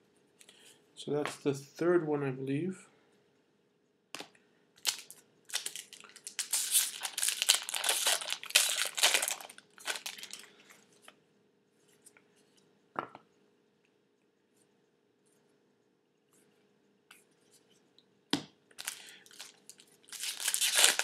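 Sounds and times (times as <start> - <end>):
wrapper tearing and crinkling: 4.8 - 10.5, 18.8 - 21.0.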